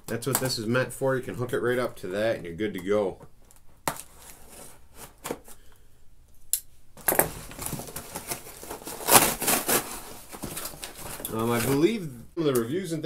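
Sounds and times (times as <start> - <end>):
paper crinkling and rustling: 7.0 - 12.0.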